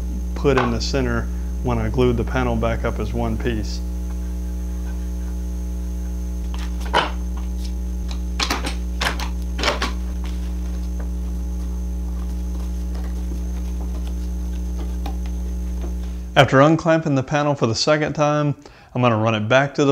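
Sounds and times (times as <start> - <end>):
electrical mains hum: 0.0 - 19.9.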